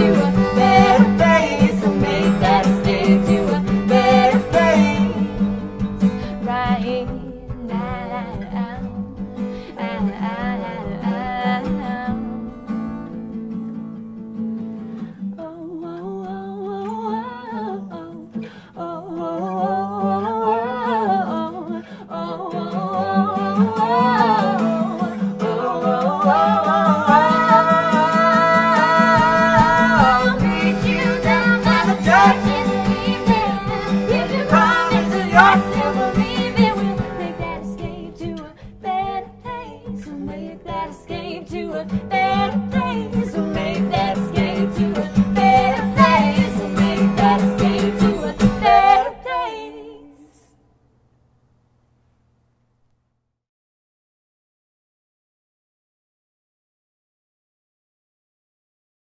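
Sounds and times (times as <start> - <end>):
man and woman singing wordlessly: 0.0 - 12.4, 15.4 - 50.5
acoustic guitar: 0.0 - 50.5
button accordion: 29.2 - 37.3.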